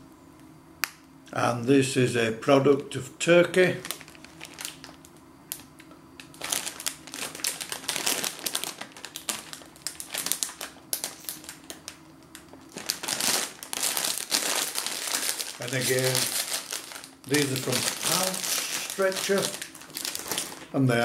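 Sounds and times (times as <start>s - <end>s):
plastic snack bag crackling: 3.6s - 20.8s.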